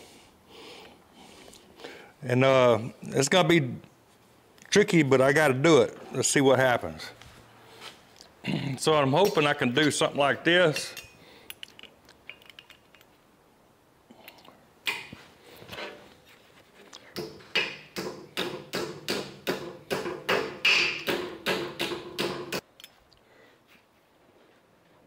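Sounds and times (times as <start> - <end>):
hammer on sheet metal: 17.2 - 22.6.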